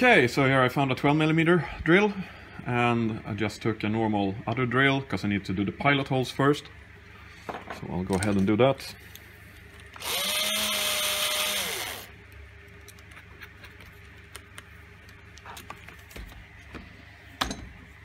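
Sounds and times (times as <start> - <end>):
cordless drill motor whining: 10.0 - 12.1.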